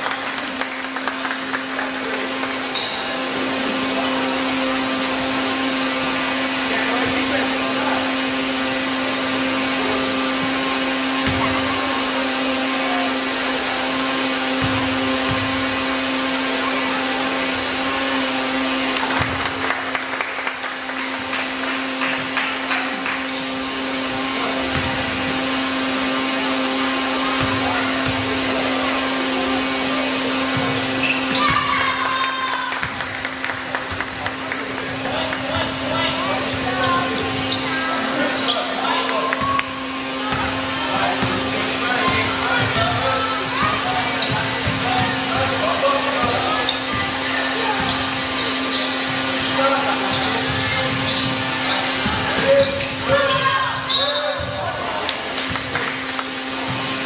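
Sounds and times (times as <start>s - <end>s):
whirring machine drone: 0.0s - 57.0s
faint voices: 20.8s - 57.0s.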